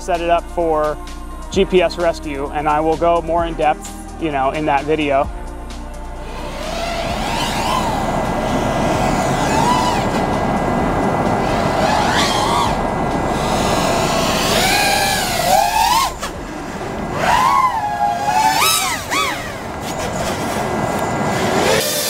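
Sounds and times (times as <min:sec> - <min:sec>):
drone motors whining: 0:05.3 - 0:22.0
wind noise: 0:06.2 - 0:22.0.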